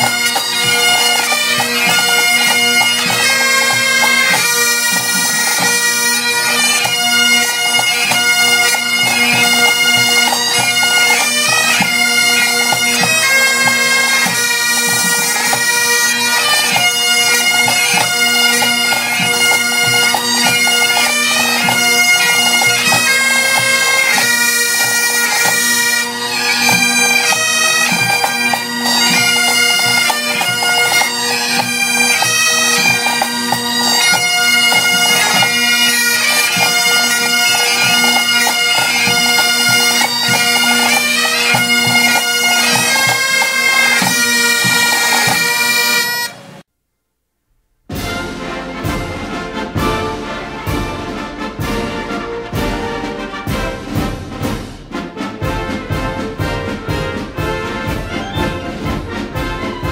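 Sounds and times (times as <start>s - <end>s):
bagpipe melody over drone: 0.0s - 46.4s.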